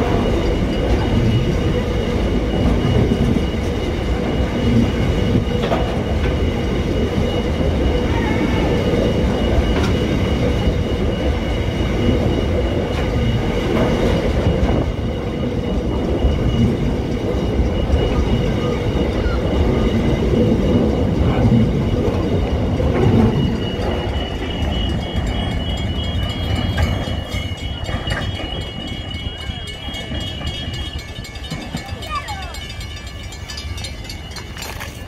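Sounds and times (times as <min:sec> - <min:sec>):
freight train wagons rumbling past: 0:00.0 - 0:35.0
wheel clacks: 0:18.0 - 0:35.0.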